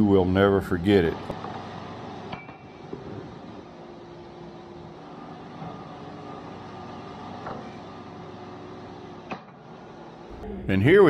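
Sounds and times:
band sawmill running: 2.9s - 11.0s.

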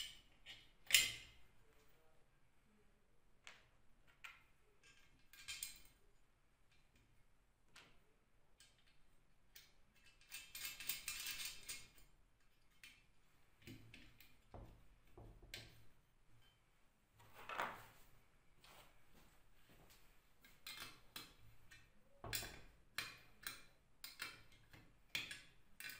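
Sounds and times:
metal parts clicking and rattling: 4.8s - 6.0s, 8.6s - 14.4s, 20.4s - 25.9s.

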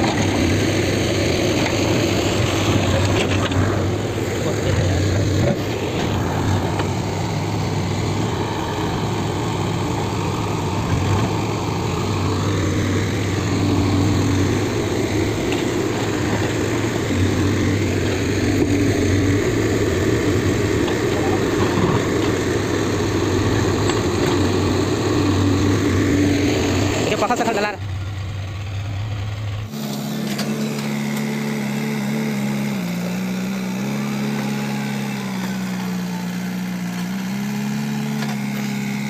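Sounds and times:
backhoe diesel engine droning: 0.0s - 39.0s.

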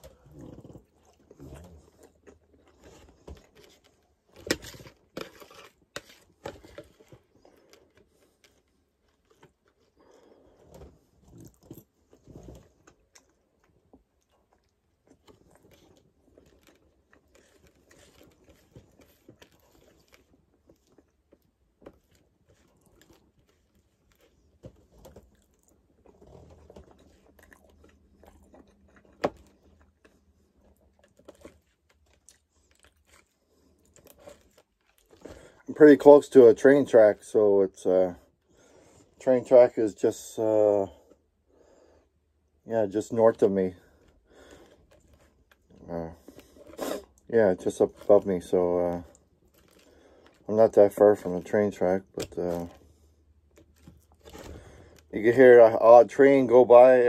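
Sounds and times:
man chewing food: 0.0s - 35.7s, 43.8s - 47.3s, 48.9s - 50.5s, 52.1s - 55.2s.

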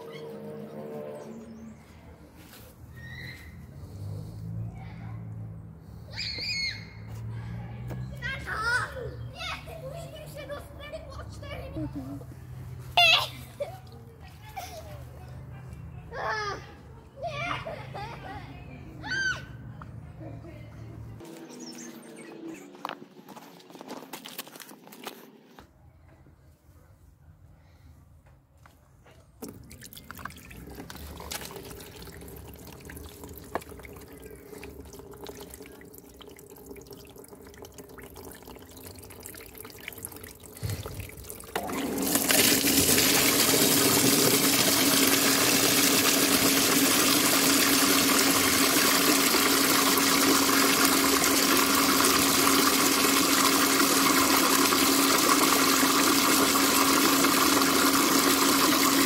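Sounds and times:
water gushing into a plastic basin: 29.4s - 59.0s.

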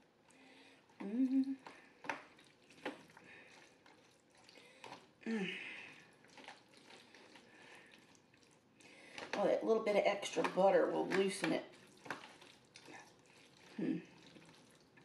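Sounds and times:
pasta squishing: 0.0s - 15.0s
person humming: 1.0s - 1.6s, 13.8s - 14.1s.

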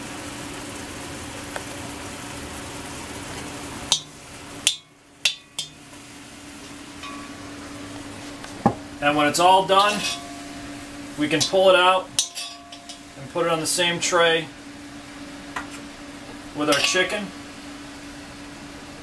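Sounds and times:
food simmering in a wok: 0.0s - 9.0s
utensil knocking against wok: 3.9s - 5.8s.

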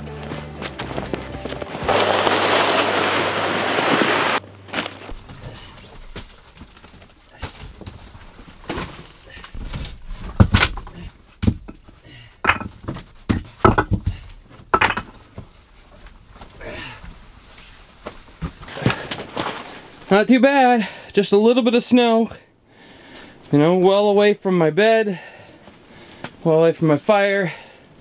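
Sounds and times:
footsteps: 0.0s - 9.4s
bags thumping on earth floor: 0.1s - 11.7s
loud rushing hiss: 1.8s - 4.4s.

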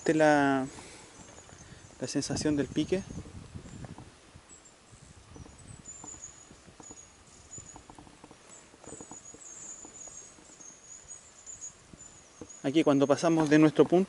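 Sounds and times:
wind rumble on microphone: 1.4s - 10.6s
faint high-pitched chirping: 4.5s - 13.7s.

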